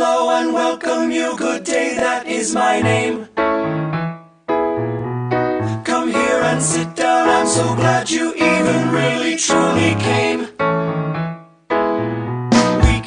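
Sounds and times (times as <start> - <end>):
singing voices: 0.0 - 3.4, 5.6 - 10.6, 12.6 - 13.0
keyboard: 0.0 - 13.0
deep bass line: 12.3 - 13.0.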